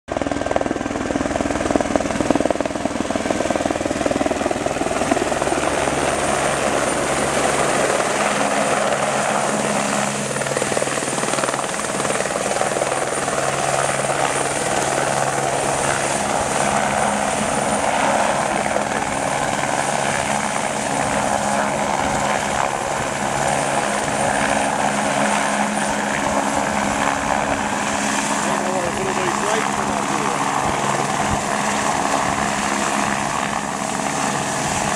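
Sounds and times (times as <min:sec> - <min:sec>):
helicopter hovering: 0:00.1 - 0:34.9.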